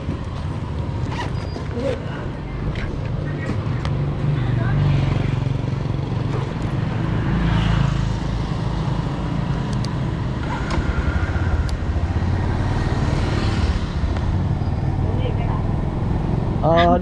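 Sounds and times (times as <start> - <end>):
passing traffic: 0.0 - 17.0
wind: 0.0 - 17.0.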